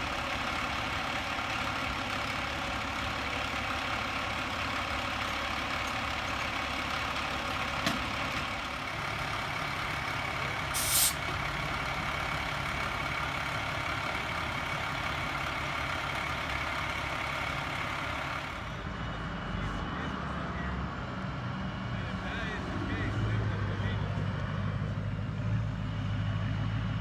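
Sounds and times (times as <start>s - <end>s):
diesel engine idling: 0.0s - 27.0s
air hiss: 10.7s - 11.2s.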